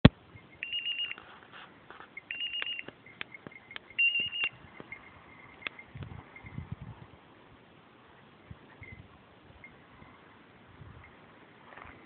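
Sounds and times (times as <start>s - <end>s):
short high electronic beeps: 0.4s - 1.2s, 2.2s - 6.6s.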